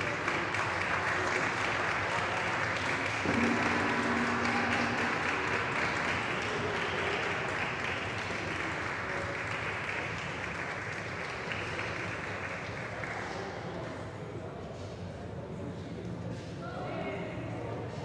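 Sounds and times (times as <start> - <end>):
small group applauding: 0.0 - 14.0
gong ringing: 3.2 - 7.5.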